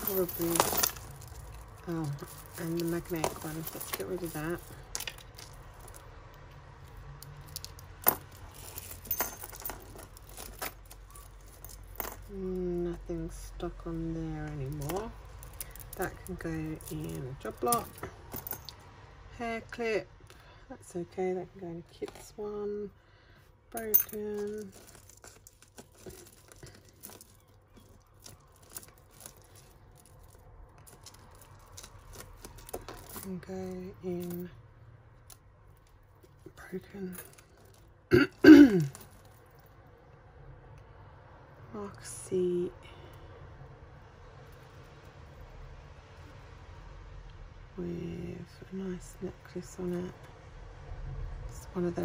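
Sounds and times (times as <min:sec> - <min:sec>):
jewellery pieces clinking: 0:00.0 - 0:06.1, 0:06.8 - 0:13.0, 0:14.3 - 0:18.8, 0:23.7 - 0:34.5, 0:35.2 - 0:39.7.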